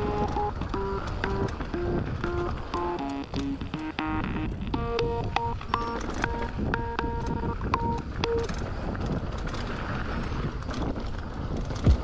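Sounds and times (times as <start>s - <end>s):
wind rush on microphone: 0.0s - 2.8s, 4.4s - 12.0s
short electronic tones music: 0.0s - 8.6s
bike tyre noise on dirt: 8.6s - 12.0s.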